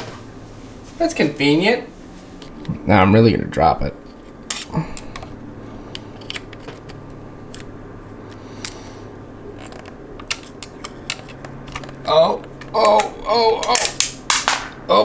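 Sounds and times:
steady low hum: 0.0 - 15.0
metal parts clicking: 9.6 - 14.0.

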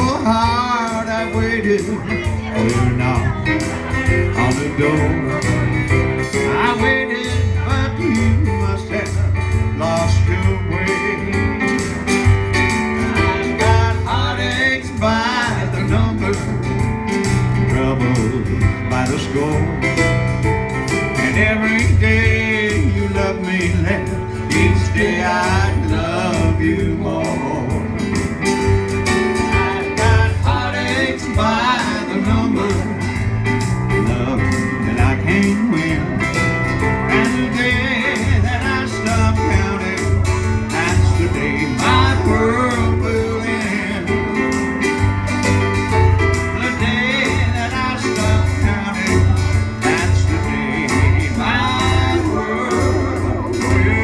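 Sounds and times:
man singing: 0.0 - 28.4, 29.1 - 44.9, 46.1 - 54.0
acoustic-electric guitar: 0.0 - 54.0
keyboard playing chords: 0.0 - 54.0.

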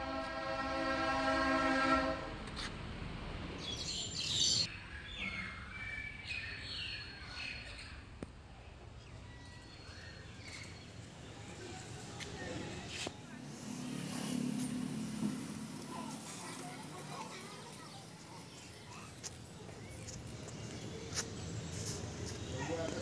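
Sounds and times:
horn-like tone: 0.0 - 2.3
outdoor background noise: 0.0 - 23.0
small birds chirping: 3.6 - 13.3, 15.8 - 23.0.

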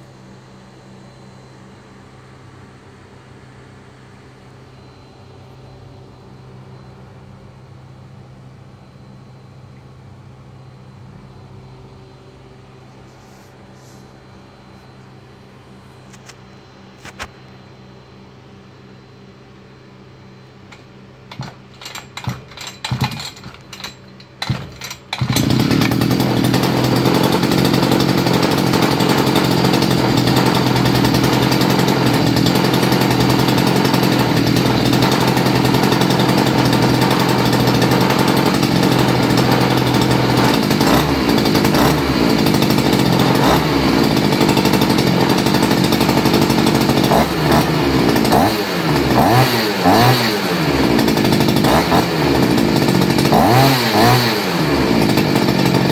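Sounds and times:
two-stroke engine revving: 21.3 - 55.9.

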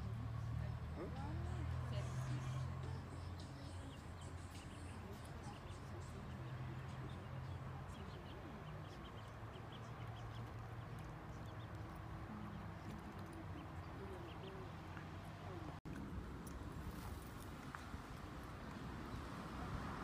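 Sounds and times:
ducklings peeping: 7.0 - 14.7.

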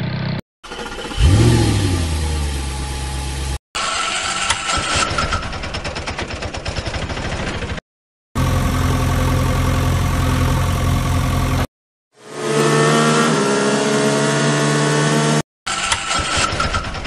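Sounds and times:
engine revving: 0.0 - 4.7, 8.4 - 15.4
rattling ticking engine: 0.2 - 4.2, 8.4 - 11.6
engine idling hum: 0.6 - 3.6, 8.4 - 11.7.

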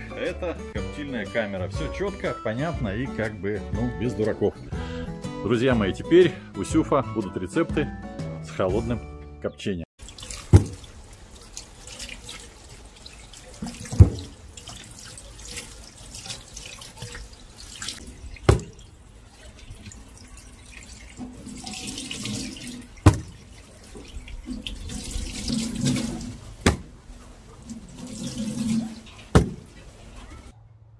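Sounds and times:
tap water running into sink: 10.0 - 30.5
sharp knocks: 18.4 - 18.8, 23.0 - 23.4, 26.6 - 27.0, 29.3 - 29.8.

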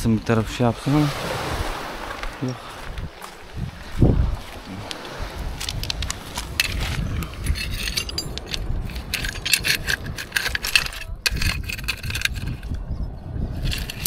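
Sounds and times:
low wind rumble on microphone: 0.0 - 14.0
objects clinking and rattling: 5.6 - 12.8, 13.6 - 14.0.

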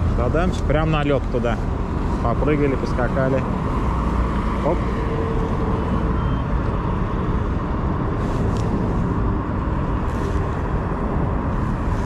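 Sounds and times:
low outdoor rumble: 0.0 - 12.0
faint short tone: 5.9 - 6.6.

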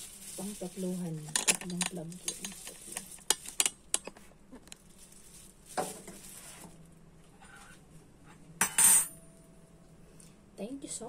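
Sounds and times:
plastic wrapping crinkling: 0.0 - 7.0.

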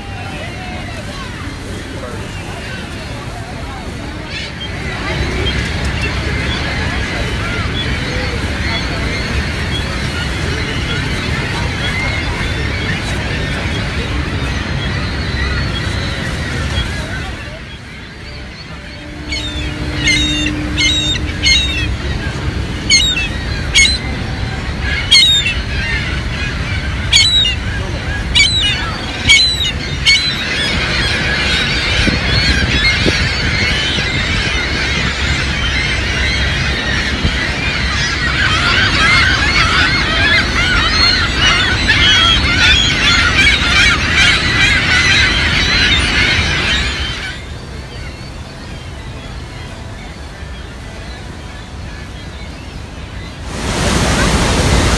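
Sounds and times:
steady low rumble: 0.8 - 37.6
gull calling: 3.8 - 48.2.

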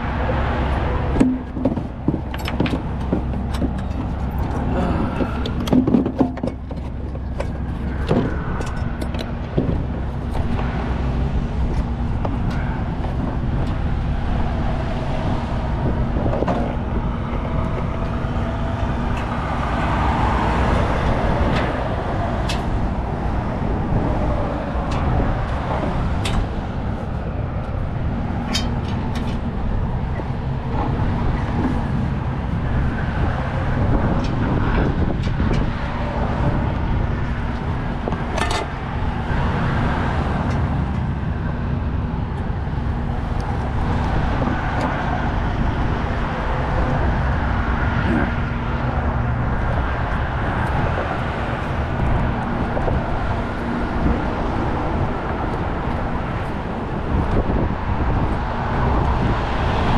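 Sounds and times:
traffic going by: 0.0 - 59.9
metal clanks of hooks and straps: 1.1 - 10.5, 38.1 - 38.7.

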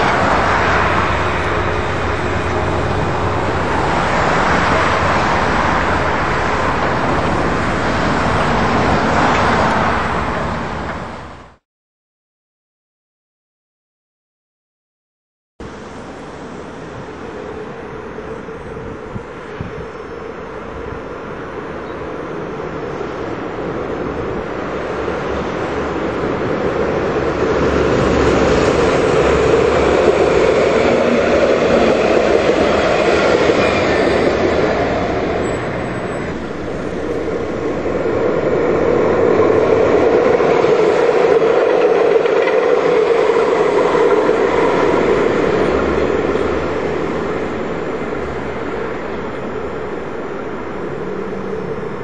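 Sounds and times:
tram rumbling on rails: 0.0 - 11.6, 15.6 - 52.0.

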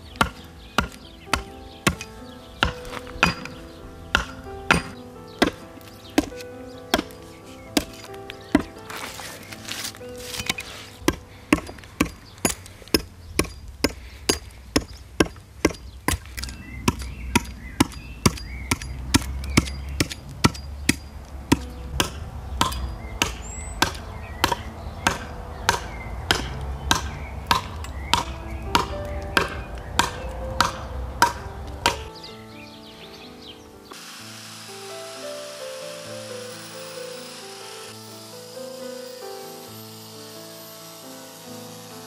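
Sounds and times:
hatchet chopping into wood: 0.2 - 3.6, 4.2 - 5.6, 6.2 - 7.2, 7.8 - 8.7, 10.3 - 32.1.

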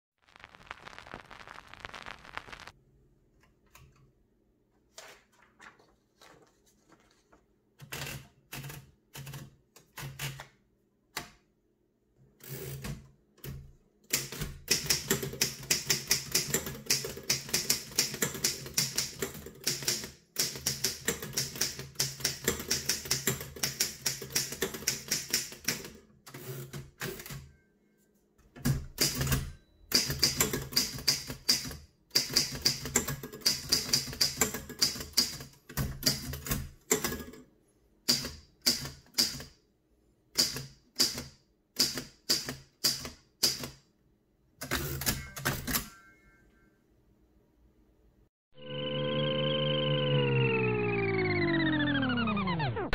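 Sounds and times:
manual typewriter keystrokes: 7.8 - 10.5, 12.7 - 27.4, 28.6 - 37.4.

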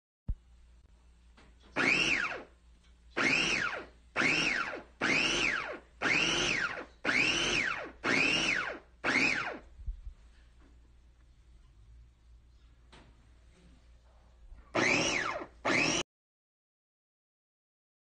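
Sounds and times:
meat grinder motor whining: 1.8 - 2.4, 3.2 - 9.6, 14.8 - 16.0.

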